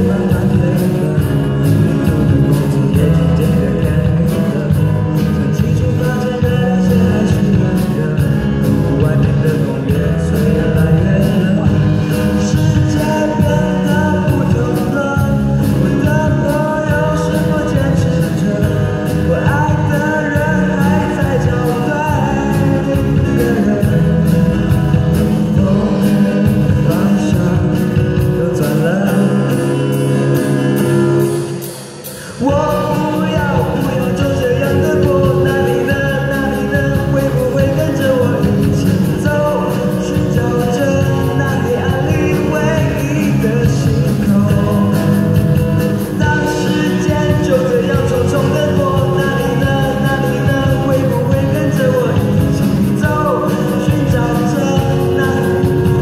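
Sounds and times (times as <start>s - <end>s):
live band playing rock ballad: 0.0s - 56.0s
man singing: 0.0s - 56.0s.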